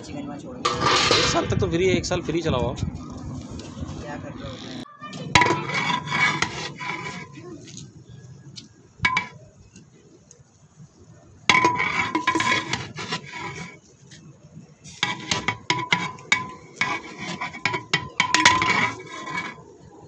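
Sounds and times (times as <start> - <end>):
metal ladle scraping pot: 0.6 - 1.6, 5.3 - 7.4, 9.0 - 9.4, 11.5 - 13.8, 14.8 - 19.8.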